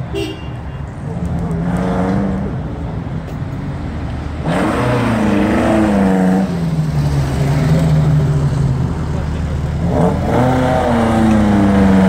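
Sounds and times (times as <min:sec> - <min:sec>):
rally car engine revving: 0:01.0 - 0:02.7, 0:04.4 - 0:12.0.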